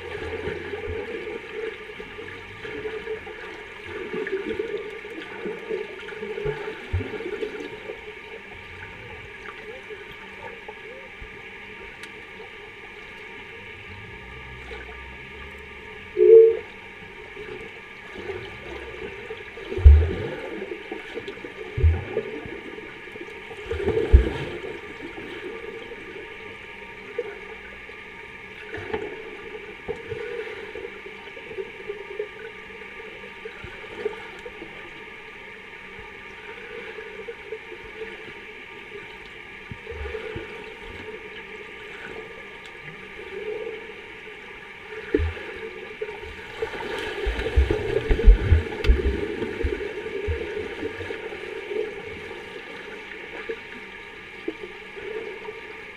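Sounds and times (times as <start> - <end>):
muffled underwater hiss and gurgle: 0.0 - 55.9
swimmers splashing: 46.5 - 50.6.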